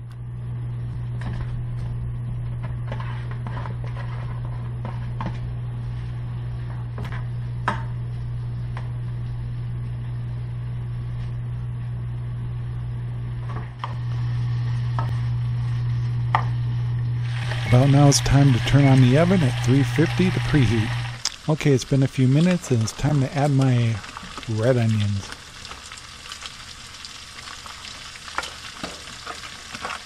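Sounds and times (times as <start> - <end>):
steady low hum: 0.0 - 27.2
bacon sizzling in a frying pan: 17.1 - 30.0.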